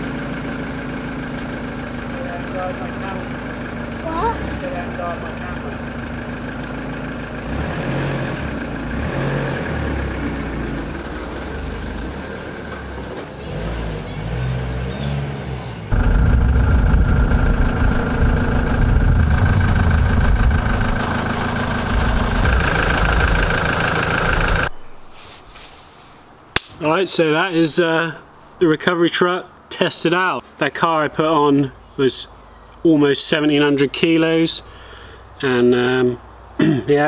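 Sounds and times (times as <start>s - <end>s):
truck engine rumbling: 0.0s - 25.3s.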